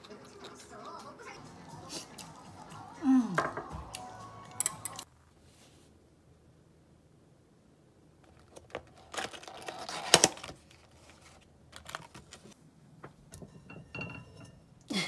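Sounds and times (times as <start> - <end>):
paperboard box clicks and rustles: 8.3 - 12.6.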